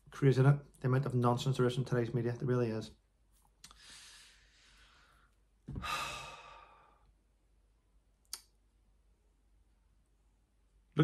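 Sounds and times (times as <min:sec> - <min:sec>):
man sighing: 0:05.7 - 0:07.0.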